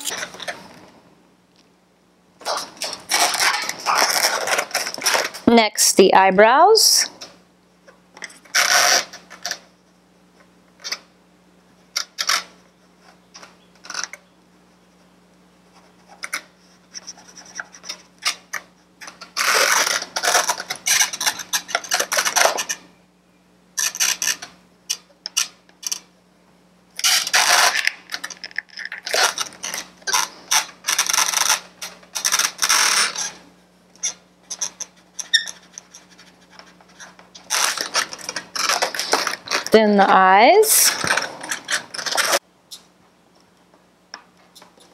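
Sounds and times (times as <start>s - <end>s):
marker scratching on balloon: 15.6s - 18.3s, 29.0s - 33.4s, 34.0s - 39.8s.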